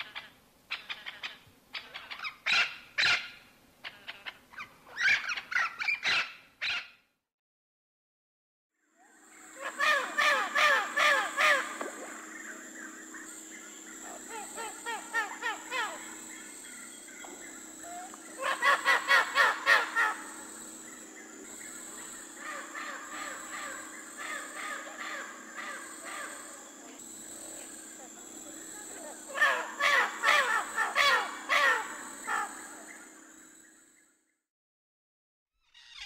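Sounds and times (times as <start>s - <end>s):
parrots squawking: 9.5s - 11.8s, 14.0s - 16.3s, 17.8s - 20.6s, 29.3s - 32.6s.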